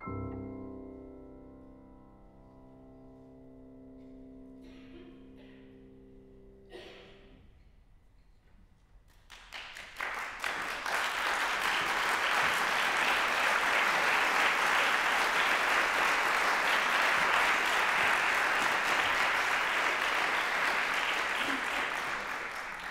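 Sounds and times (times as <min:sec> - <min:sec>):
audience applause: 0:09.3 - 0:22.9.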